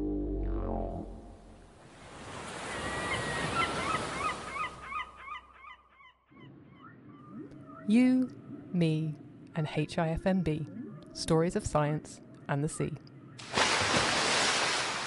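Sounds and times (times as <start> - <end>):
tone sliding down: 0.0 - 1.7.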